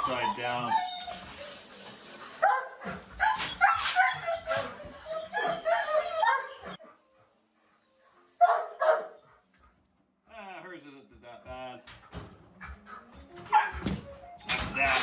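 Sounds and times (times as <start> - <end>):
dogs barking and yipping: 0.0 - 9.5, 12.6 - 14.4.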